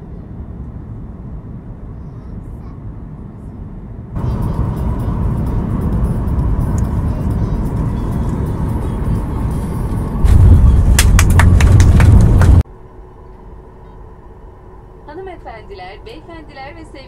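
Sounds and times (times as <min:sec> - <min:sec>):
jet engines droning in cabin: 0:00.0 - 0:17.0
loud rushing noise: 0:04.2 - 0:12.6.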